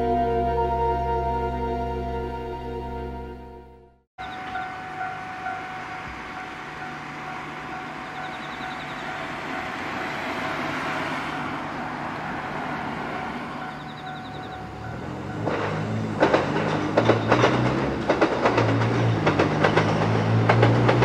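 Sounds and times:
level crossing warning alarm ringing: 0:00.0 - 0:10.9, 0:12.8 - 0:16.4.

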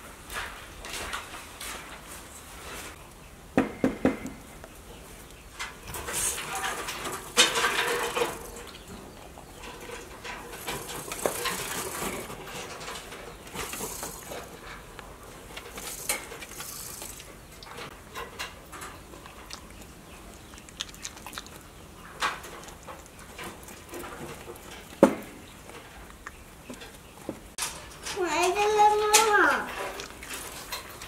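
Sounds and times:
porcupine chewing and gnawing: 0:13.2 - 0:27.2, 0:29.7 - 0:31.0.

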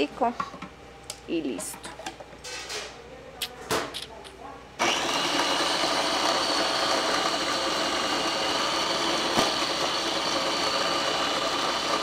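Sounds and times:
food processor motor whine: 0:04.8 - 0:12.0.

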